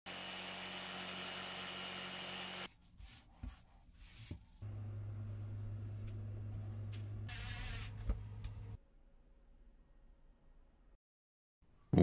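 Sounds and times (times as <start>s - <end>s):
jigsaw cutting plywood: 0.1s - 2.7s.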